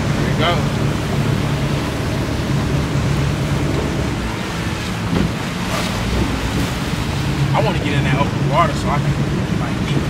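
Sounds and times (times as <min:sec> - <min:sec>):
motorboat engine hum: 0:00.0 - 0:10.0
rushing water: 0:00.0 - 0:10.0
wind buffeting microphone: 0:00.0 - 0:10.0.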